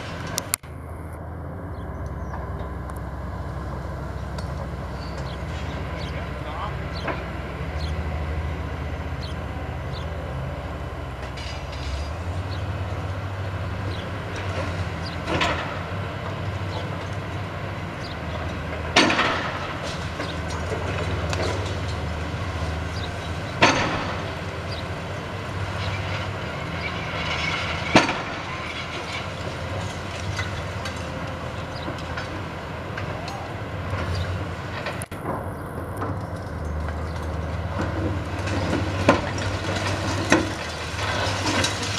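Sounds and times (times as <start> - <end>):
excavator diesel engine: 0.0 - 41.9
concrete cracking and crunching: 34.7 - 41.9.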